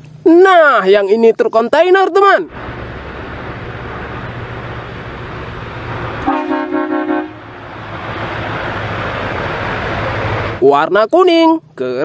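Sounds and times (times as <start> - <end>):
low engine hum: 2.4 - 10.7
truck horn blast: 6.2 - 7.5.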